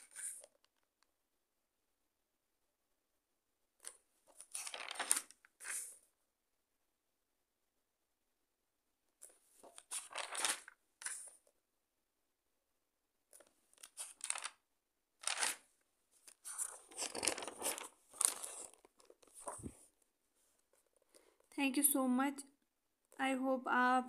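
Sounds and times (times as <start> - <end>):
paper pages rustling: 0.0 - 0.8, 3.8 - 6.0, 9.2 - 11.4, 13.4 - 14.6, 15.2 - 19.9.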